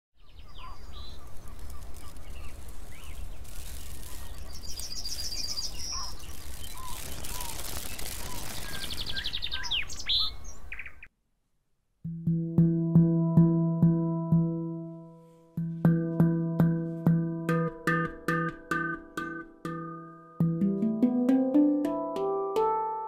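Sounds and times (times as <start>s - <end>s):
songbirds chirping and singing: 0.2s - 11.1s.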